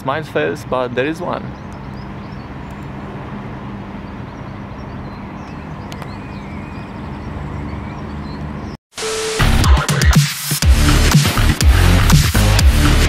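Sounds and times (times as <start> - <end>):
birds chirping: 0.0 - 8.8.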